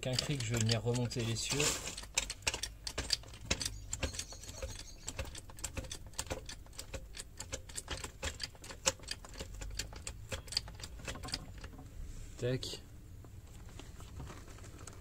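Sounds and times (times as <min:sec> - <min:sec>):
jack clicking metallically: 0:00.0 - 0:11.8.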